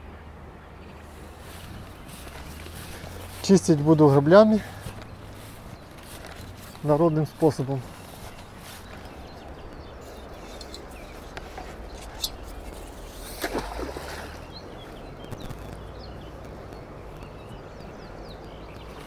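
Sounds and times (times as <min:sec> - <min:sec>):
rake splashing into river: 0:12.4 - 0:14.5.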